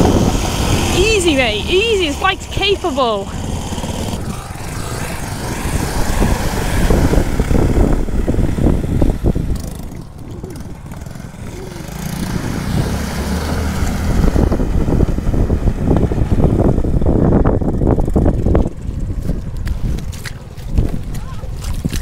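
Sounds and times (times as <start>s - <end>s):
water splashing: 0.0s - 14.4s, 19.2s - 22.0s
motorcycle engine running: 0.0s - 21.6s
wind buffeting microphone: 0.0s - 22.0s.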